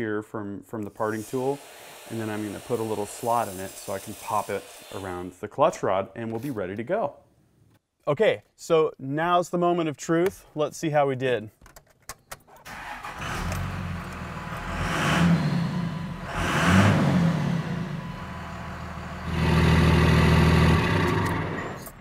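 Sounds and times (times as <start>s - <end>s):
diesel engine starting and revving: 12.7s - 22.0s.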